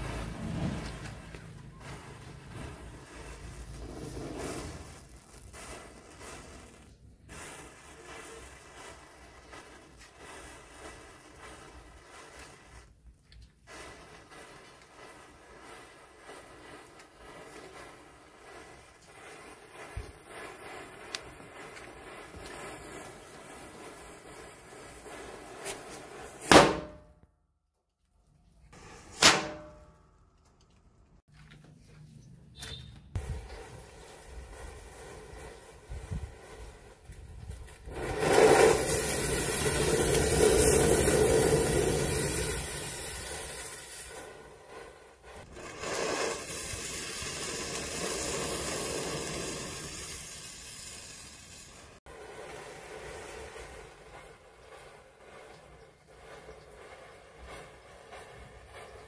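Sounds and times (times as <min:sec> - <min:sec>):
burning fuse crackling and hissing: 0:00.0 - 0:27.1, 0:32.6 - 0:59.0
matches flaring and fizzing: 0:00.0 - 0:27.2, 0:33.1 - 0:59.0
firecracker bang: 0:24.8 - 0:27.2, 0:28.8 - 0:30.0
small pop: 0:26.4 - 0:27.1.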